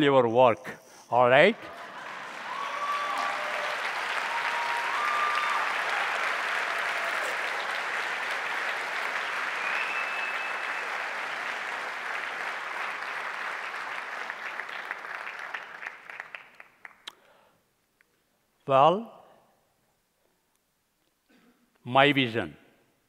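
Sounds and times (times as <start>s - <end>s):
audience applauding: 1.5s - 17.1s.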